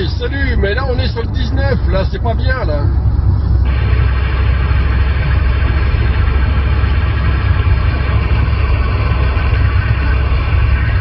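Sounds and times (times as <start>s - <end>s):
car engine and road noise: 0.0s - 11.0s
radio static hiss: 3.6s - 11.0s.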